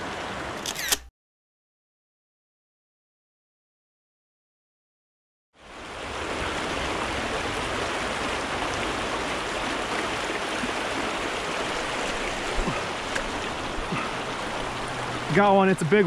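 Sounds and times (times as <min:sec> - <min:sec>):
creek water rushing: 0:00.0 - 0:00.7, 0:05.6 - 0:16.0.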